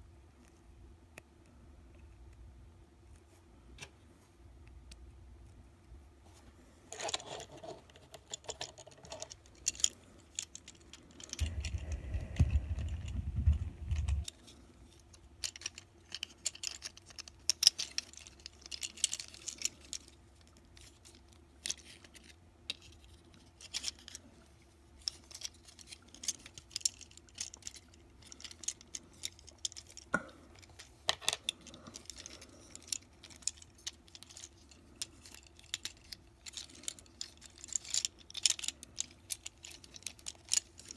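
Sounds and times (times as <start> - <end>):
low handling rumble: 11.4 - 14.3
plastic clicks of toy joints: 25.0 - 40.9.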